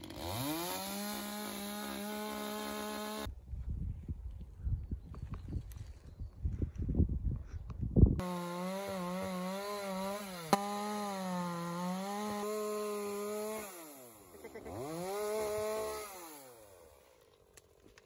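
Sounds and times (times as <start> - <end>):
chainsaw cutting into tree trunk: 0.0 - 3.3, 8.2 - 17.8.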